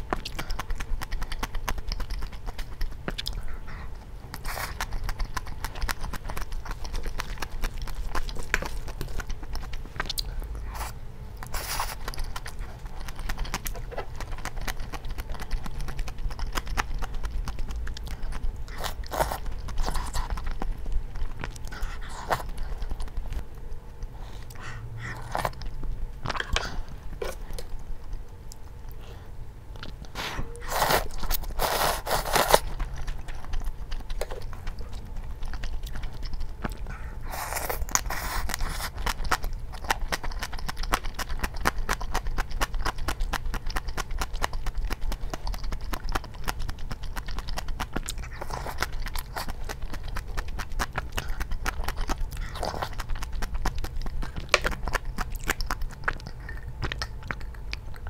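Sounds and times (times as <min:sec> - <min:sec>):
wet chewing: 0:00.0 - 0:58.0
noodles slurped: 0:30.1 - 0:33.5.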